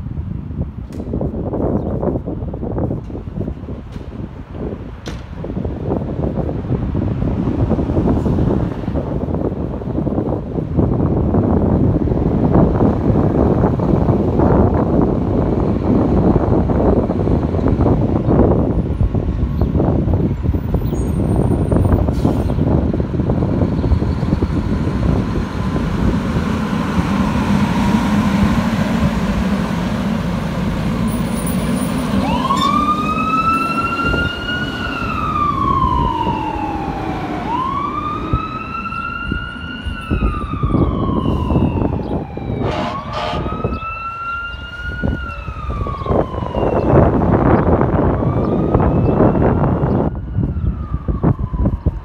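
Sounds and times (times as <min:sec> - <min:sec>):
diesel engine rumbling: 0:00.0 - 0:52.0
siren wailing: 0:31.0 - 0:52.0.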